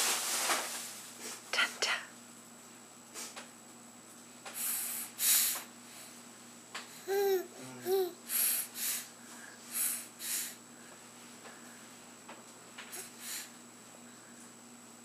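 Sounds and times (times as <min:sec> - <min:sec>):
nasal sniffs: 0:04.5 - 0:06.1, 0:08.3 - 0:09.1, 0:09.7 - 0:10.6, 0:12.9 - 0:13.5
infant vocal sounds: 0:07.0 - 0:08.7.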